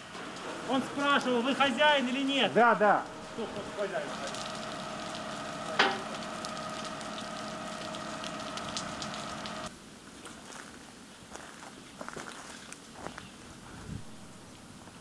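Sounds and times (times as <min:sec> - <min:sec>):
burning house crackling: 0:00.0 - 0:09.7
steady hum: 0:03.0 - 0:09.7.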